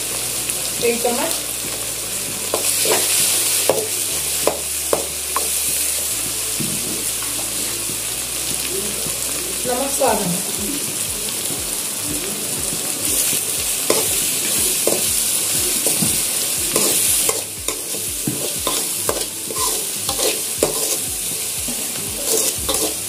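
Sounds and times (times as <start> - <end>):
masala sizzling in hot oil: 0.0 - 23.0
metal spoon scraping a pan: 2.5 - 5.9, 13.2 - 15.1, 15.8 - 21.4, 22.2 - 23.0.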